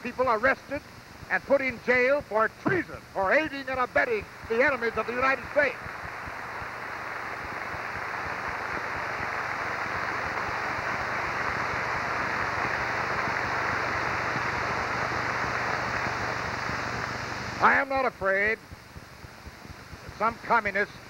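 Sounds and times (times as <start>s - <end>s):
audience applauding: 4.5s - 17.1s.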